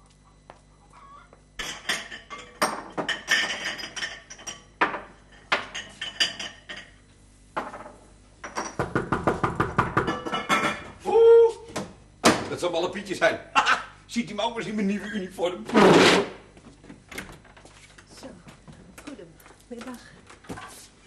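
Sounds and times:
crockery clattering: 0:01.6 - 0:07.0, 0:10.0 - 0:11.0
knocks on wooden cabinet: 0:08.8 - 0:10.2.

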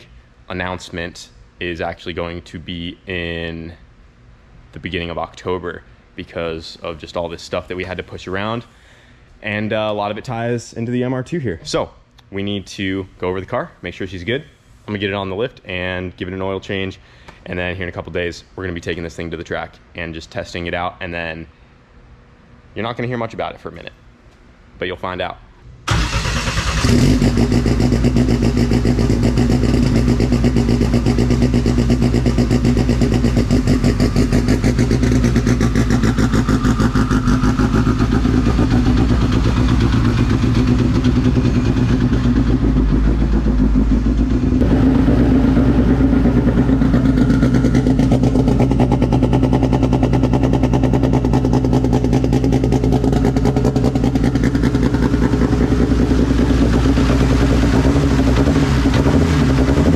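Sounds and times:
car engine idling: 0:25.9 - 0:59.9.

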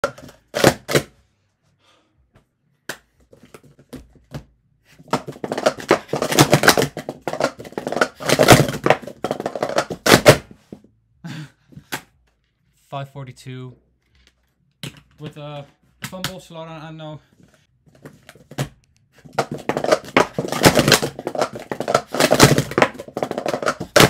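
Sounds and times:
plastic cups clattering: 0:00.0 - 0:01.0, 0:05.0 - 0:10.5, 0:18.0 - 0:24.0.

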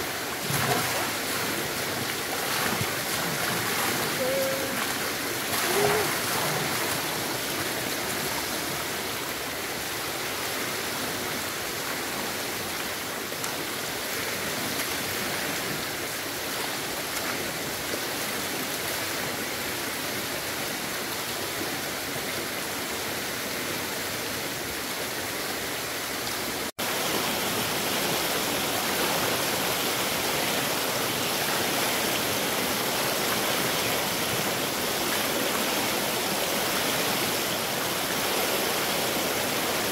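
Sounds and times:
stream water rushing: 0:00.0 - 0:39.9.

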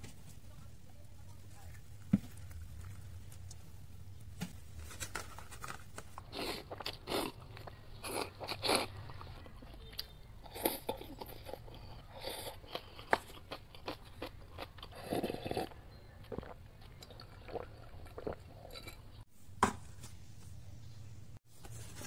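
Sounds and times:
wet chewing with mouth clicks: 0:06.2 - 0:19.2
slurping noodles: 0:14.8 - 0:15.8.

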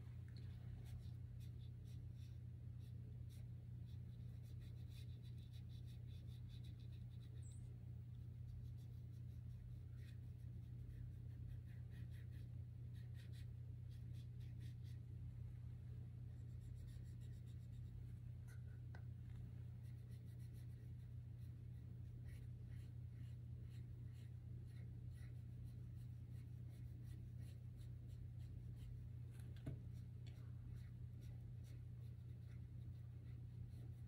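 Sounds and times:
steady low hum: 0:00.0 - 0:34.0
pencil scratching on paper: 0:19.8 - 0:29.0, 0:30.8 - 0:34.0.

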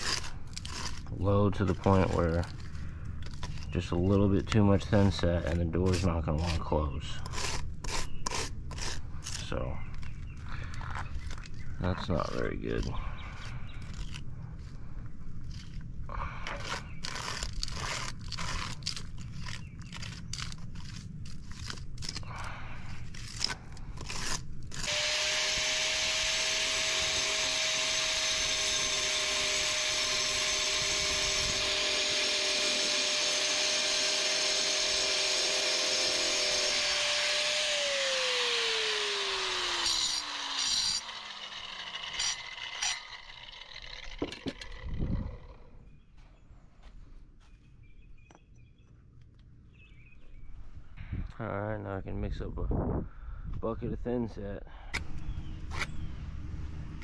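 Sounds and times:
scraping and handling noise: 0:08.7 - 0:24.9
angle grinder cutting concrete: 0:23.4 - 0:45.7
grinder spinning down: 0:24.7 - 0:45.7.

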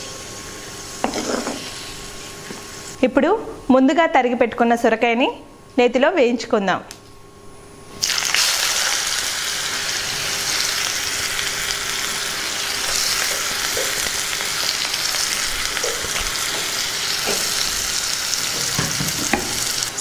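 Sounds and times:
vegetable sizzling in hot fat: 0:00.0 - 0:03.0, 0:08.0 - 0:20.0.

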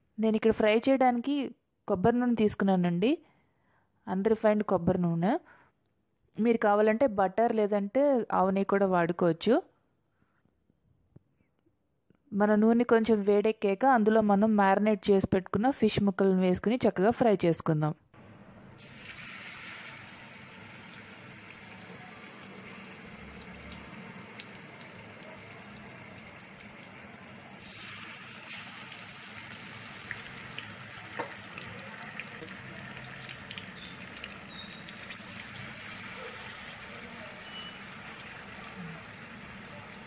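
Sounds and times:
fish sizzling in oil: 0:18.8 - 0:40.0.

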